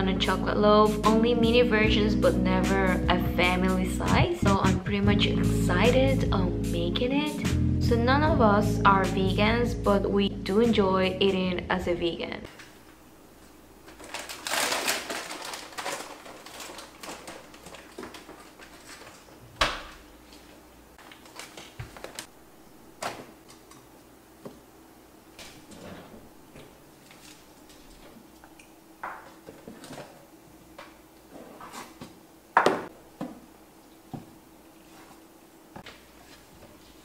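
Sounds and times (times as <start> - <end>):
faint steady hum: 0.0 - 37.0
packaging rustling: 13.8 - 19.4, 20.2 - 22.3.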